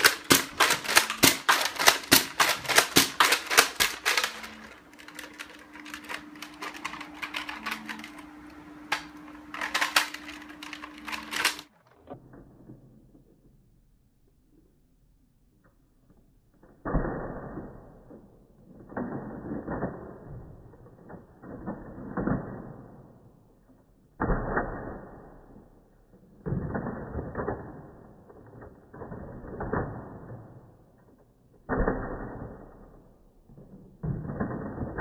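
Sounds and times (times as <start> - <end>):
dart blaster mechanical clacks: 0.0 - 11.8.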